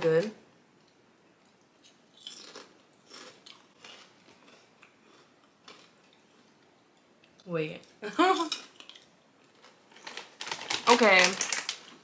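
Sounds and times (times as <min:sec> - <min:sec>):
crunching potato chips: 0:02.2 - 0:06.0, 0:08.8 - 0:12.0.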